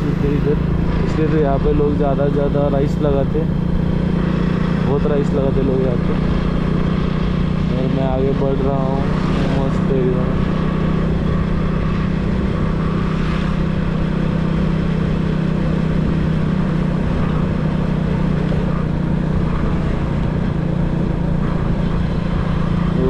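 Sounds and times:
road and wind noise: 0:00.0 - 0:23.0
vehicle engine drone: 0:00.0 - 0:23.0.

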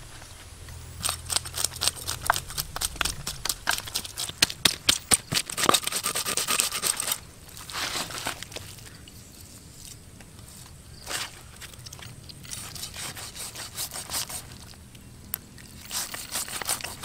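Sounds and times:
knife scraping fish scales: 0:05.3 - 0:08.4, 0:12.4 - 0:14.7, 0:15.8 - 0:17.0.

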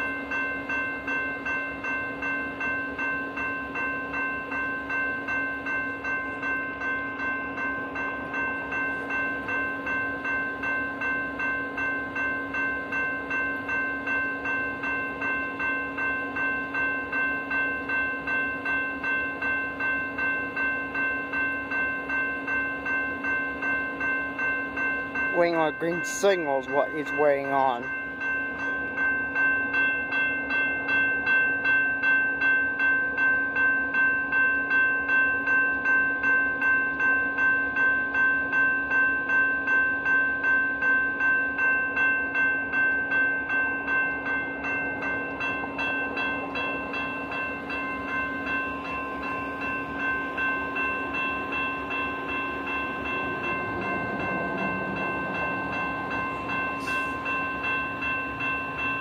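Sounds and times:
crossing bell ringing: 0:00.0 - 0:59.0
low rumble: 0:52.2 - 0:59.0.

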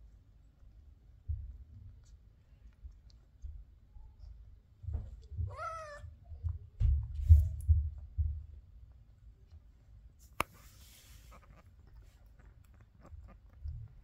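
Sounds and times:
muffled thumps and knocks: 0:04.7 - 0:08.8
cat meow: 0:05.4 - 0:06.2.

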